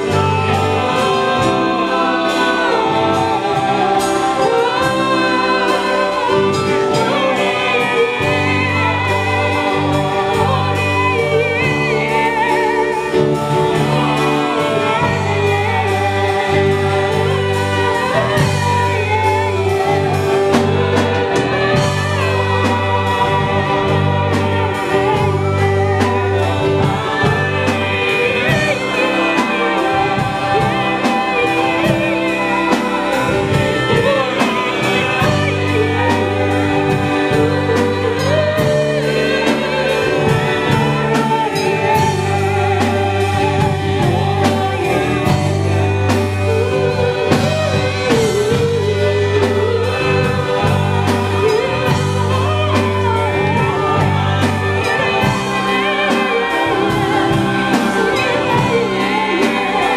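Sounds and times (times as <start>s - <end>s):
person singing: 0.0s - 59.9s
worship song by live band: 0.0s - 59.9s.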